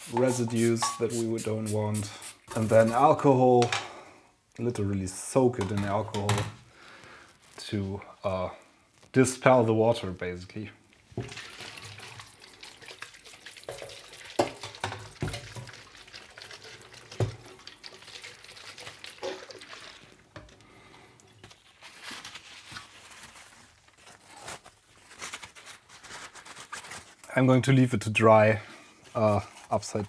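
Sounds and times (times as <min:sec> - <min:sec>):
water spattering on steel sink: 0:11.2 - 0:20.3.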